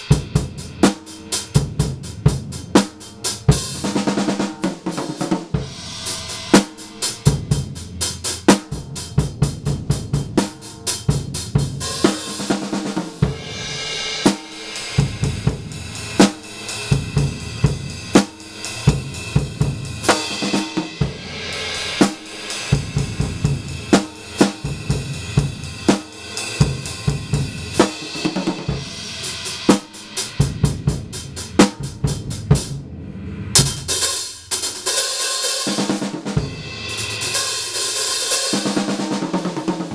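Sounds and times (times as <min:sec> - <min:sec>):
drum kit beat: 0:00.0 - 0:39.9
hi-hat and cymbals: 0:00.0 - 0:39.9
crash cymbal: 0:05.4 - 0:09.5, 0:11.8 - 0:35.7.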